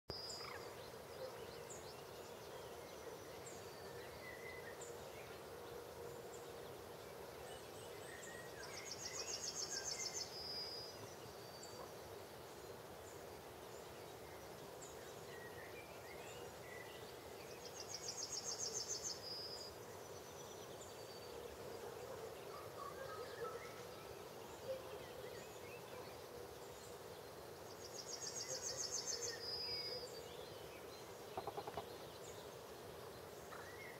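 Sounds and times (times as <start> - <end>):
birds chirping: 13.8 - 33.9
songbird trilling: 31.4 - 32.0.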